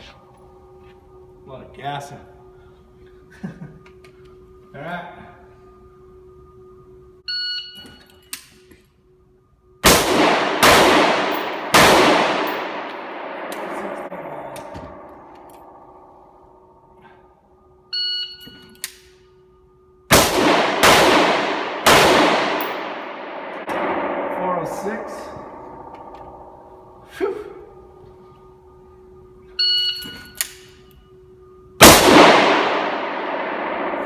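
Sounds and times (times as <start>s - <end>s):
shot timer beep: 7.3s - 8.4s, 17.9s - 18.9s, 29.6s - 31.0s
rifle shots echoing: 9.8s - 16.2s, 20.1s - 27.0s, 31.8s - 34.0s.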